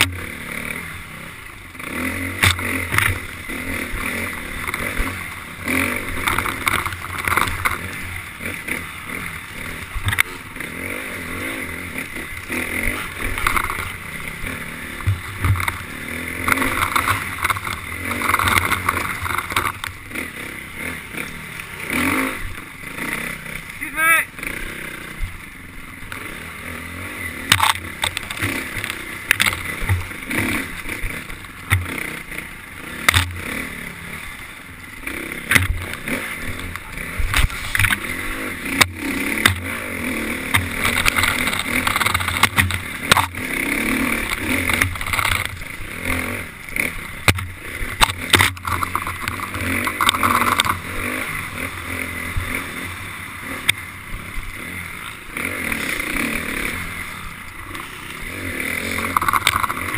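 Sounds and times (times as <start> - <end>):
dirt bike engine revving: 0.0 - 59.9
bike knocks and rattles: 2.2 - 8.2, 12.6 - 20.2, 27.3 - 32.2, 32.9 - 33.6, 35.2 - 45.8, 46.8 - 51.2, 58.9 - 59.9.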